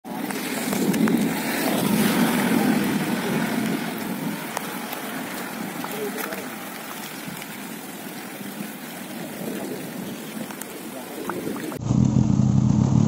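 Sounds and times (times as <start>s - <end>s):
rain on a flooded road: 0.1s - 12.8s
low rumble: 11.8s - 13.0s.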